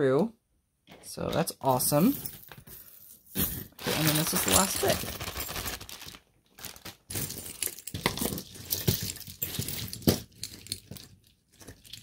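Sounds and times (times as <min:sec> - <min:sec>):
metal chains clinking: 0:02.0 - 0:05.6, 0:07.1 - 0:11.1
plastic bag crinkling: 0:03.6 - 0:12.0.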